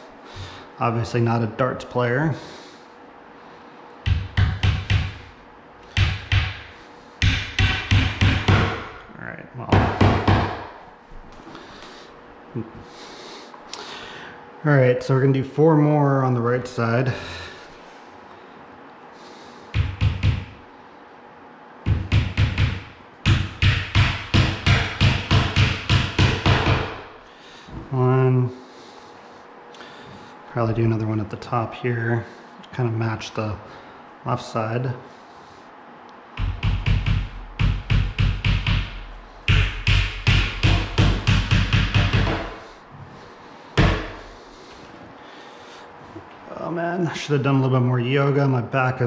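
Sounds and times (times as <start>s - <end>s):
hammer tapping nails: 4.1s - 5.2s, 5.9s - 9.0s, 9.8s - 10.8s, 19.8s - 20.6s, 21.9s - 27.1s, 36.4s - 42.6s, 43.8s - 44.2s.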